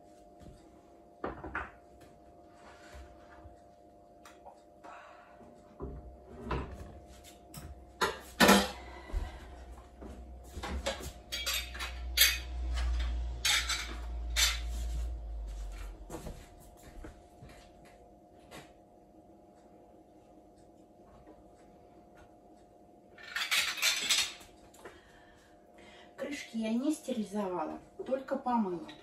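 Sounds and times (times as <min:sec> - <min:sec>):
dishes and utensils clinking: 0:08.0 - 0:08.8, 0:10.7 - 0:15.1, 0:23.2 - 0:24.5.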